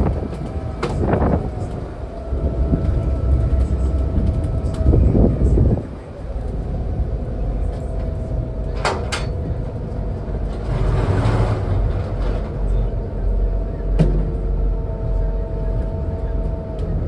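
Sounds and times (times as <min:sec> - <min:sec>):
ferry engines droning: 0:00.0 - 0:17.0.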